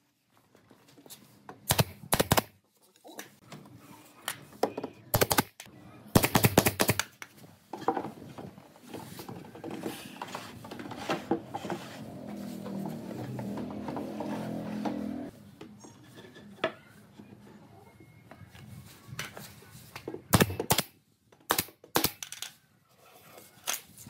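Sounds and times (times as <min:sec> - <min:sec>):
nail gun firing into wood: 0:01.7 - 0:02.5, 0:05.2 - 0:05.6, 0:06.2 - 0:07.1, 0:20.3 - 0:20.9, 0:21.5 - 0:22.3.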